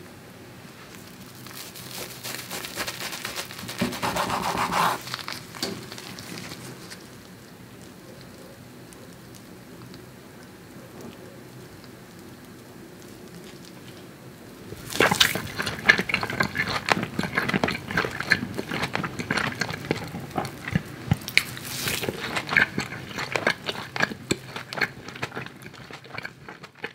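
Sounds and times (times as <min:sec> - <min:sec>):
faint background noise: 0:00.0 - 0:26.9
wet chewing and mouth clicks: 0:14.7 - 0:26.9.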